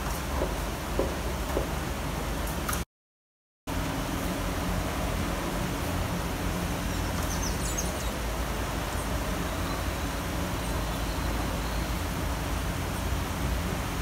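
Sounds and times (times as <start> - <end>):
rain falling: 3.7 - 14.0.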